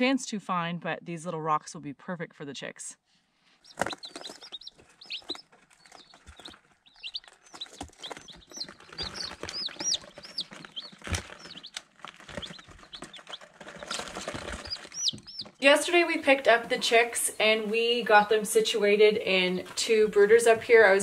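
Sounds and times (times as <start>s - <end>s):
chicks peeping: 3.5s - 18.1s
pecking taps and rustles on paper: 3.7s - 15.6s.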